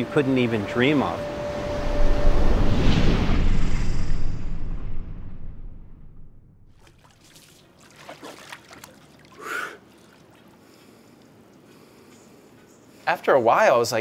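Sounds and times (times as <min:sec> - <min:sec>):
water trickling and dripping: 0:06.8 - 0:11.7
sharp exhale: 0:09.4 - 0:09.8.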